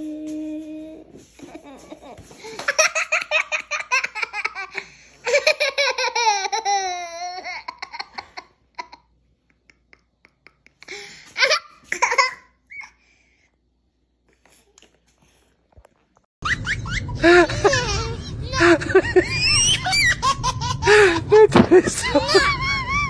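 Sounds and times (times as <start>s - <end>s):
toddler laughing: 1.2s - 9.1s, 16.4s - 23.0s.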